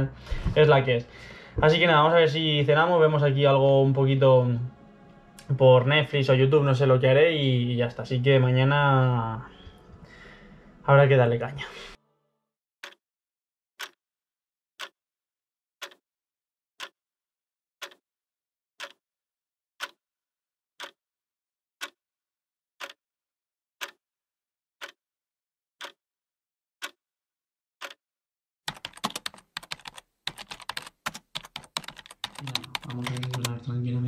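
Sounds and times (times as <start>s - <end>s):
clock ticking: 13.8s - 14.0s, 15.8s - 16.0s, 17.8s - 18.0s, 18.8s - 19.0s, 19.8s - 20.0s, 20.8s - 21.0s, 21.8s - 22.0s, 22.8s - 23.0s, 23.8s - 24.0s, 24.8s - 25.0s, 25.8s - 26.0s, 26.8s - 27.0s, 27.8s - 28.0s, 28.7s - 33.6s
fast keyboard typing: 28.7s - 33.6s.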